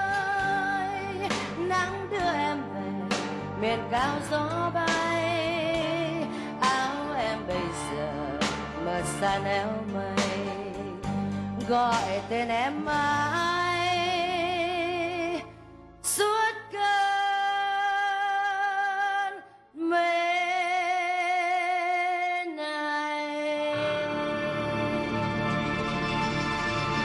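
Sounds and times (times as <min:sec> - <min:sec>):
woman singing a slow ballad: 0:00.0 - 0:24.8
instrumental accompaniment: 0:23.7 - 0:27.0.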